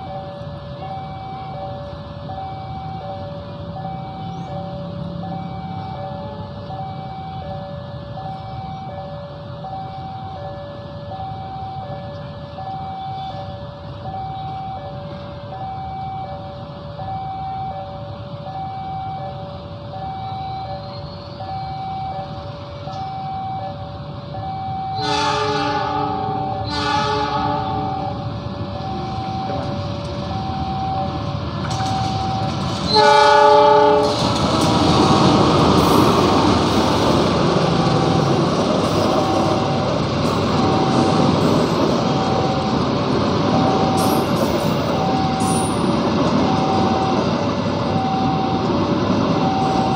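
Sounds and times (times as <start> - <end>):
diesel locomotive rumble: 0.0 - 49.9
two-tone electronic alarm: 0.0 - 49.9
locomotive horn blast: 25.0 - 28.2, 32.9 - 34.4.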